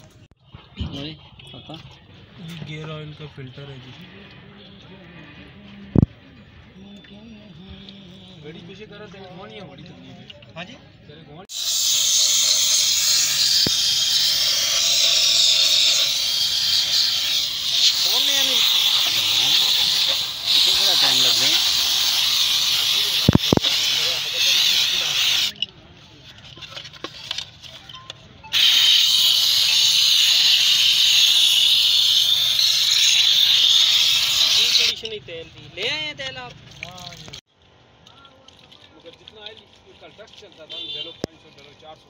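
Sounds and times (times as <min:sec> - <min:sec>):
aerosol spray hissing: 0:11.5 - 0:25.6, 0:28.6 - 0:35.0.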